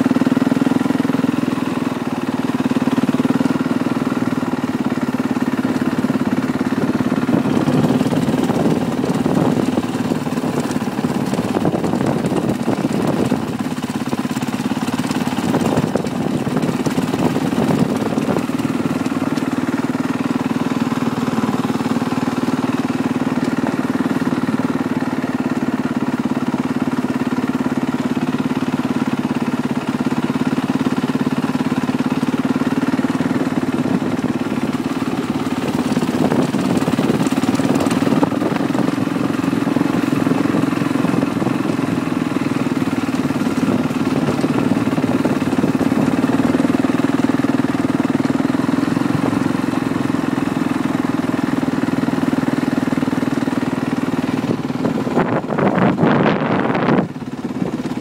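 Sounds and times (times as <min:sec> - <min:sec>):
dirt bike engines running: 0:00.0 - 0:58.0.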